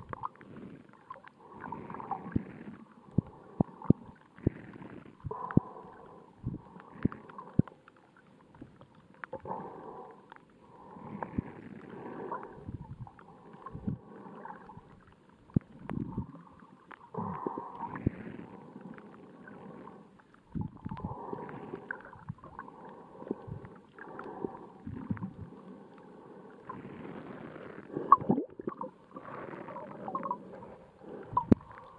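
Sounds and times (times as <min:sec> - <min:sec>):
underwater rushing and gurgling: 0:00.0 - 0:31.9
sharp underwater clicks: 0:03.1 - 0:09.6, 0:15.4 - 0:26.8.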